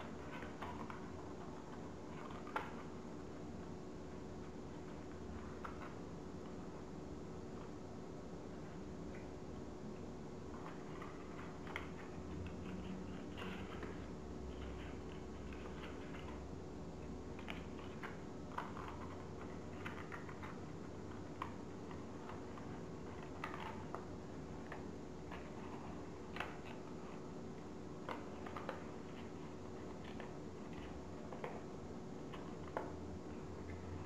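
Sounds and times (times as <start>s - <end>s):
faint steady hum: 0.0s - 34.0s
paper crackling and clicking: 17.4s - 27.2s, 28.0s - 31.7s.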